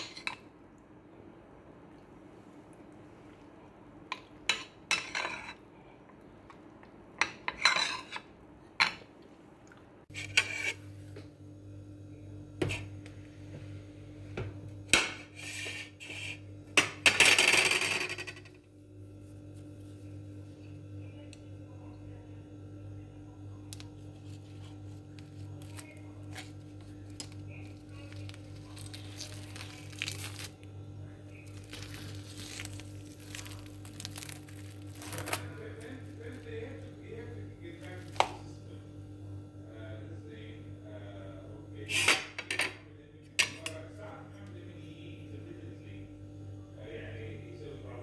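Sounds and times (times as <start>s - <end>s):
steady low hum: 0.0s - 48.0s
metal spoon scraping ceramic plate: 7.5s - 8.3s, 10.1s - 10.9s.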